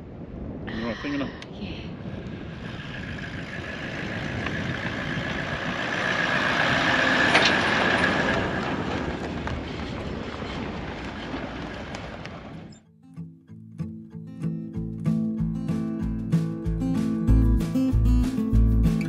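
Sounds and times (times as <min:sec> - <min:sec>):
vehicle driving past on dirt: 0:02.4 - 0:12.8.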